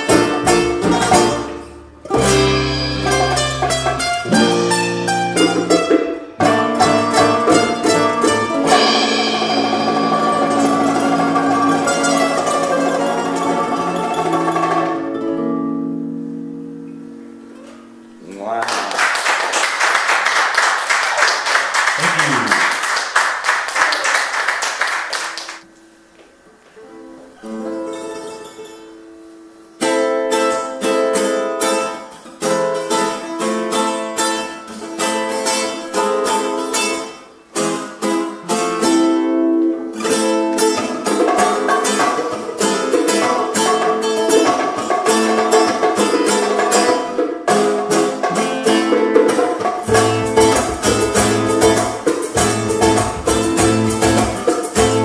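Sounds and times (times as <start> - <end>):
plucked acoustic guitar notes: 0.0 - 18.6, 26.8 - 55.0
latin acoustic group playing: 0.0 - 25.7, 26.8 - 55.0
audience applause: 18.5 - 25.6.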